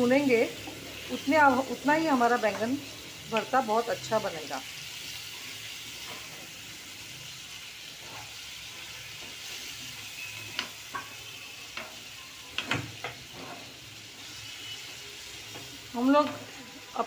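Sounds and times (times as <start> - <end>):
vegetables sizzling in oil: 0.0 - 17.0
spoon scraping and knocking pan: 10.4 - 12.0.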